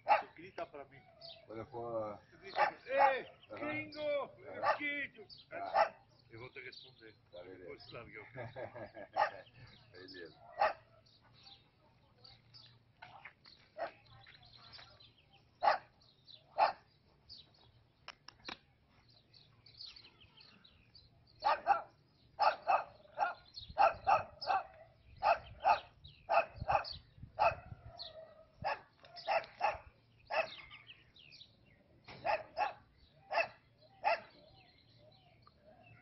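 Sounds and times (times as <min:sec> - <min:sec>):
dog barking: 0:00.0 - 0:00.4, 0:02.5 - 0:03.2, 0:04.5 - 0:04.9, 0:05.7 - 0:06.1, 0:09.1 - 0:09.4, 0:10.4 - 0:11.0, 0:15.6 - 0:15.9, 0:16.6 - 0:16.8, 0:21.4 - 0:30.6, 0:32.2 - 0:34.4.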